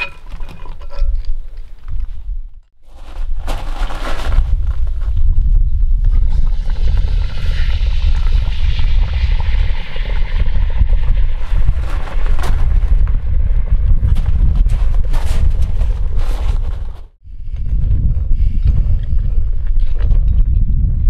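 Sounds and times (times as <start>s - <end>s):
low rumble: 4.3s - 21.0s.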